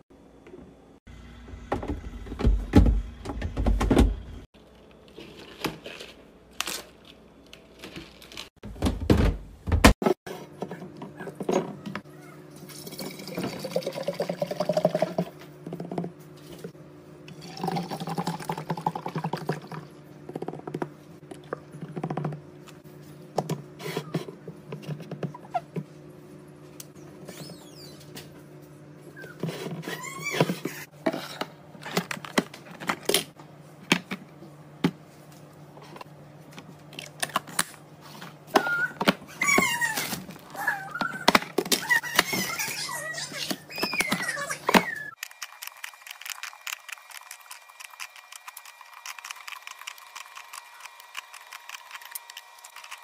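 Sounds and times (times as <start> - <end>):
liquid gurgling into a glass jar: 12.8 - 15.1, 17.4 - 19.9.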